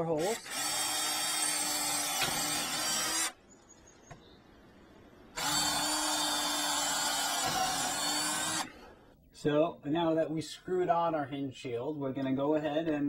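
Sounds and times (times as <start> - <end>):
power drill drilling: 0.0 - 3.4, 5.4 - 8.8.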